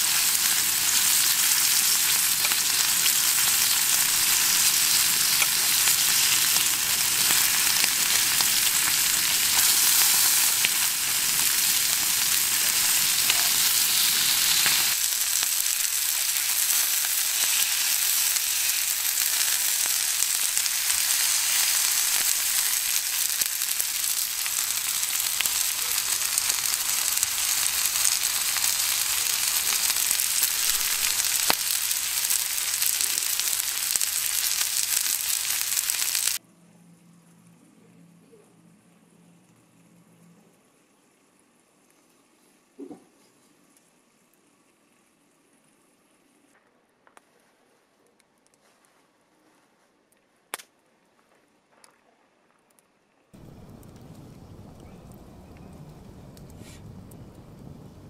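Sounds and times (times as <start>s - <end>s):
steak sizzling on a griddle: 0.0s - 36.4s.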